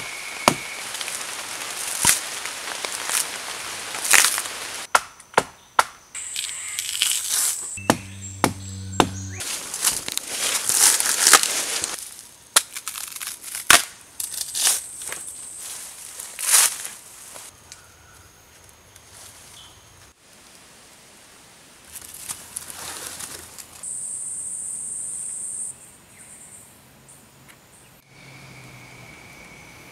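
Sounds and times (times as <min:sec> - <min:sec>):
leaves and undergrowth rustling: 0:00.0 - 0:04.9, 0:06.2 - 0:17.6, 0:21.6 - 0:23.8
bark ripping and cracking: 0:04.0 - 0:04.4, 0:12.6 - 0:14.8.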